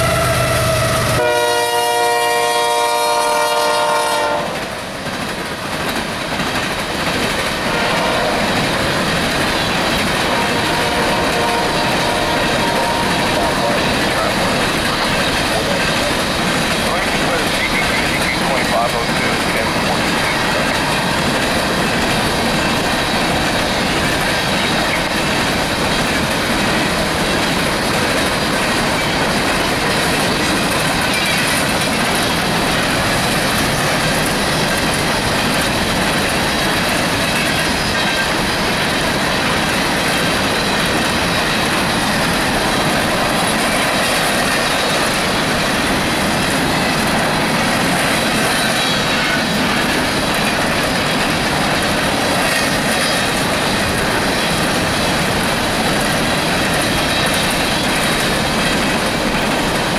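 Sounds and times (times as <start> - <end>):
train wheels rolling on rail: 0.0 - 59.9.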